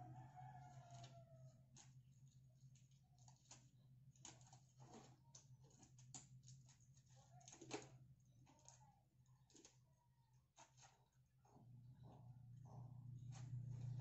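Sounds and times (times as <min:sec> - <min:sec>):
low steady hum: 0:07.9 - 0:14.0.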